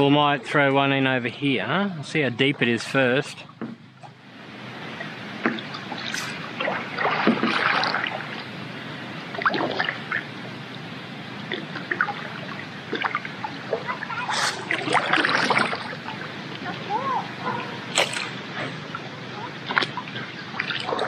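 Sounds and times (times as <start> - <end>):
small paddle splashes: 5.0 - 8.5, 11.5 - 16.8, 19.6 - 21.0
water dripping off paddle: 5.0 - 8.5.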